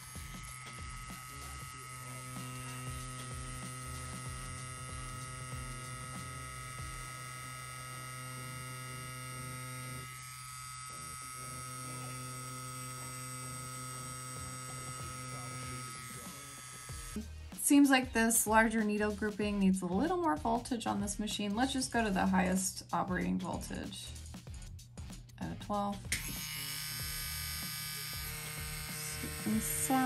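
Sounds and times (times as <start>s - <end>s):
tattoo pen humming: 0.0s - 17.2s, 26.1s - 30.0s.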